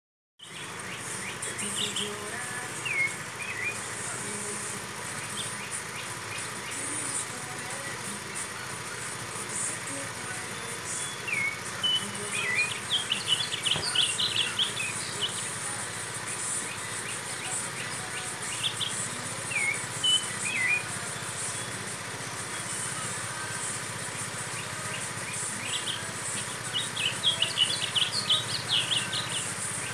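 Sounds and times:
songbird twittering: 0.4s - 29.9s
high insect hiss: 0.5s - 29.9s.

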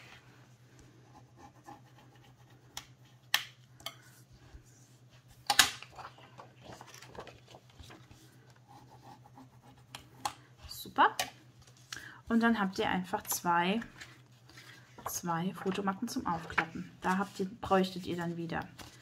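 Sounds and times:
soft rubbing strokes on paper: 4.1s - 5.3s.

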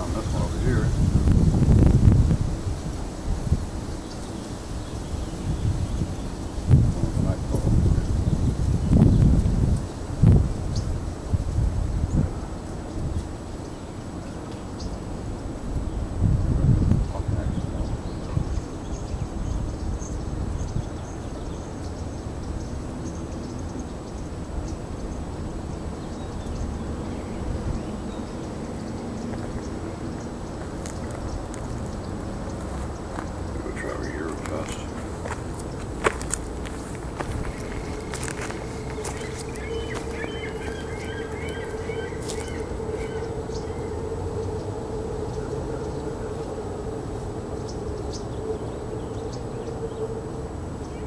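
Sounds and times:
small birds chirping: 0.0s - 1.5s, 3.8s - 15.1s, 16.8s - 46.6s
wind rumbling on microphone: 0.0s - 51.0s
low drone: 10.4s - 51.0s.

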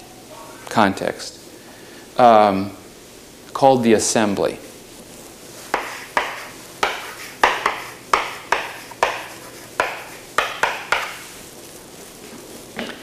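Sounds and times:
chalk tapping and scraping on blackboard: 5.6s - 11.3s.

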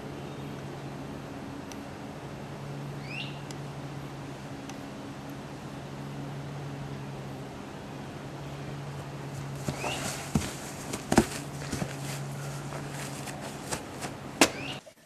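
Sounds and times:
steady low hum: 0.0s - 15.0s
knocks and thumps: 9.6s - 12.0s.

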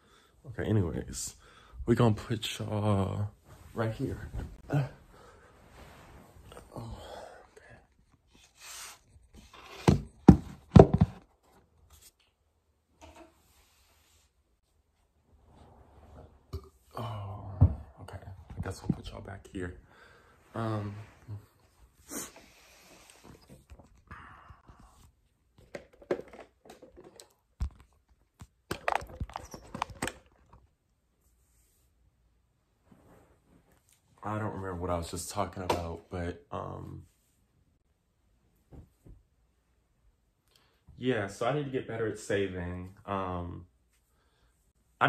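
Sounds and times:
phone rustling: 25.6s - 30.7s.

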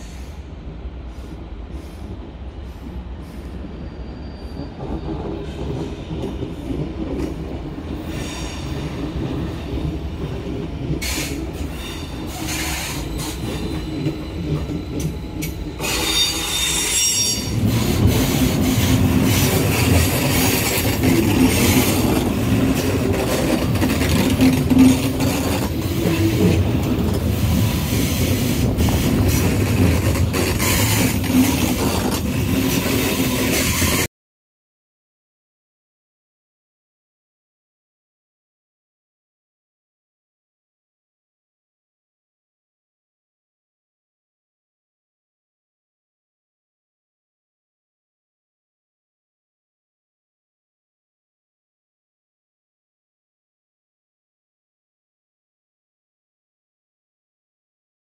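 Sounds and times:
train low hum: 0.0s - 34.1s
train wheel and rail rumble: 0.0s - 34.1s
high wheel squeal: 3.8s - 5.1s, 11.2s - 17.6s.

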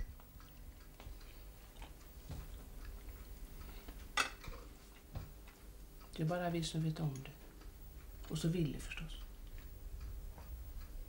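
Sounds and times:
faint low hum: 0.0s - 11.0s
cutlery clinking on plates: 4.2s - 4.7s.

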